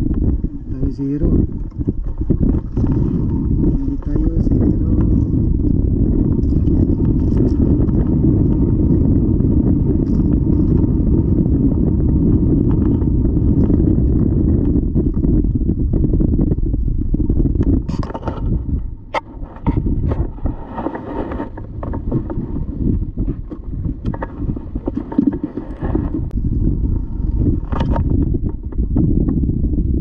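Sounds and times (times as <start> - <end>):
wind buffeting microphone: 0.0 - 30.0
water lapping against hull: 0.1 - 9.0, 17.1 - 28.8.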